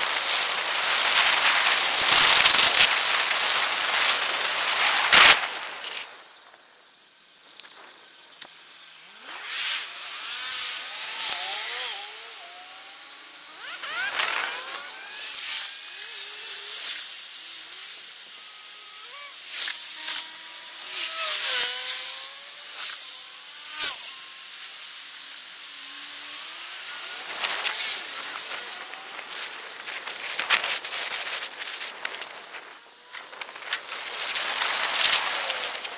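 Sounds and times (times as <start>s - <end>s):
sped-up passing vehicles whining: 8.9s - 35.9s.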